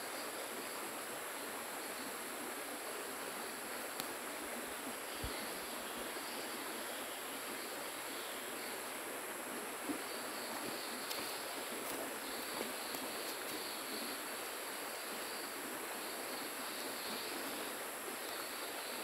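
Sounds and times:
river flowing: 0.0 - 19.0
faint clicks: 10.6 - 13.8.

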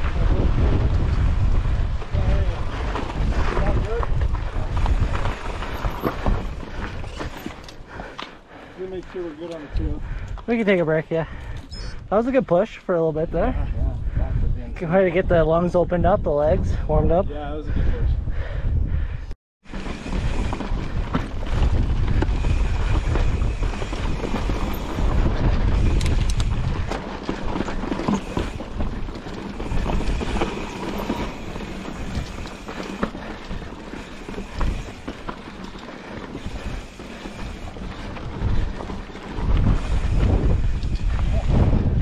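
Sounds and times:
wind buffeting microphone: 0.0 - 12.6, 13.2 - 42.0
bike tyres on rocky trail: 0.0 - 13.7, 19.6 - 42.0
bike clattering: 0.9 - 8.6, 19.7 - 42.0.

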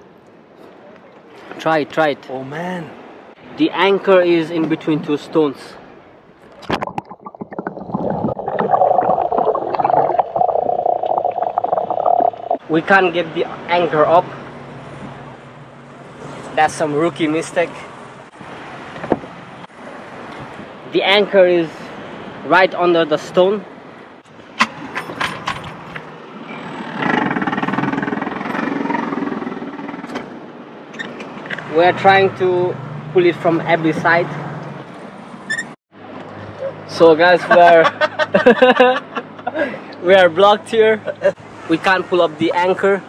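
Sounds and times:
knocks and splashes: 6.4 - 12.6
muffled underwater rush: 6.5 - 12.6.

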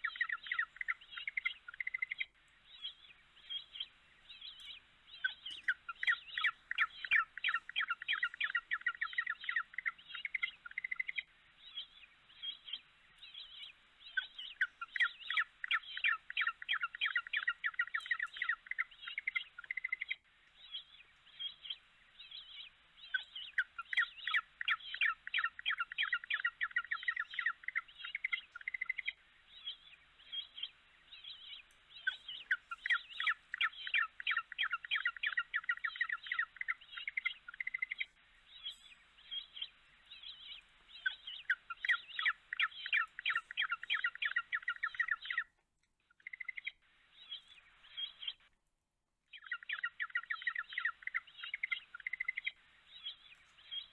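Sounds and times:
birds chirping in trills: 0.0 - 48.5, 49.3 - 53.9.

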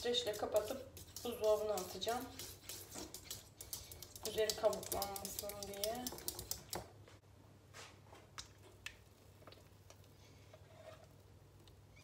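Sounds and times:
kitchen utensils clicking: 3.0 - 6.8.

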